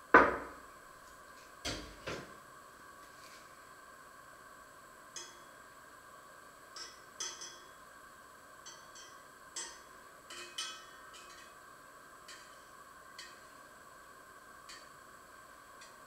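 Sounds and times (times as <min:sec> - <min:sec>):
faint hum: 0:00.0 - 0:16.0
utensils and dishes clinking: 0:06.7 - 0:07.8, 0:08.6 - 0:11.6, 0:12.3 - 0:13.5.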